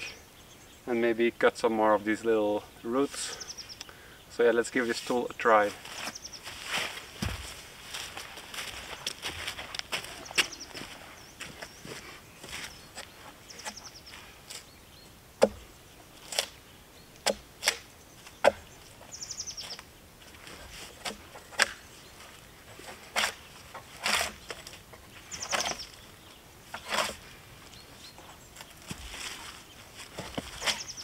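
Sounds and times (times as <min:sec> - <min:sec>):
tool striking and scraping bark: 0:12.9 - 0:14.6, 0:15.4 - 0:16.6, 0:17.2 - 0:18.7, 0:20.4 - 0:21.9, 0:22.7 - 0:26.0, 0:26.6 - 0:27.3, 0:30.1 - 0:31.0.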